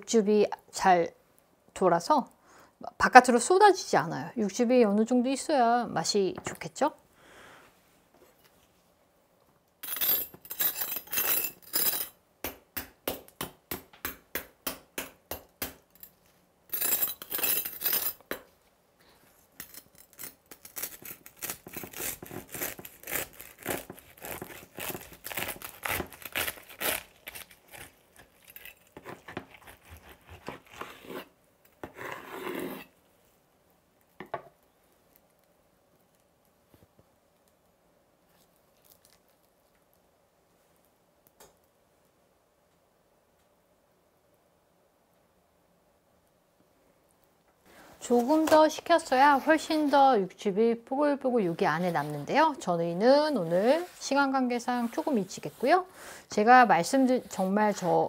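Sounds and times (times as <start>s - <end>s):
knife sawing through crispy skin: 20.1s - 31.3s.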